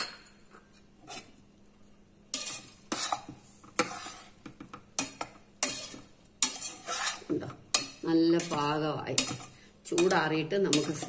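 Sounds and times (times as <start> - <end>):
spoon scraping and clinking in pot: 0.0 - 1.4, 2.3 - 11.0.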